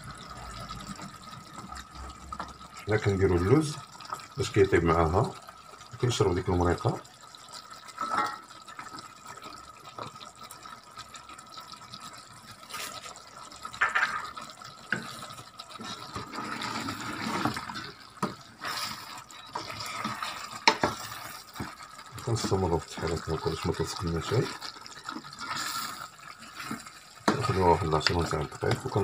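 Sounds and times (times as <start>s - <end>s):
sauce bubbling in a pot: 0.0s - 29.0s
wooden spatula scraping a pot: 14.1s - 29.0s.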